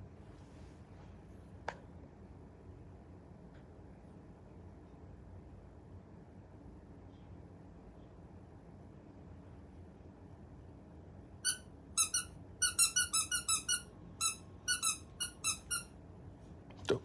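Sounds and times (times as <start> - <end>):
squeaky toy squeaks: 11.4 - 15.9.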